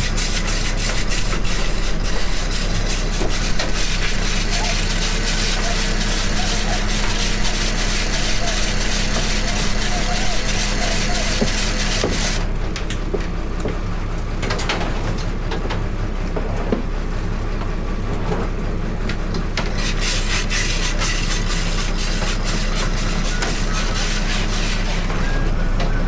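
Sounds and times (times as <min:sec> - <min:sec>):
boat engine running: 0:00.0 - 0:13.2, 0:19.5 - 0:26.0
clicks knocks and scraping: 0:19.6 - 0:26.0.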